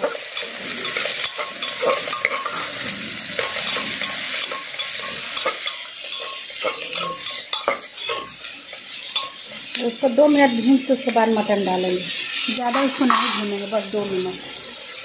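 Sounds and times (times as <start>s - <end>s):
metal spoon scraping pot: 0.0s - 10.2s, 12.2s - 13.6s
onions sizzling in oil: 0.0s - 15.0s.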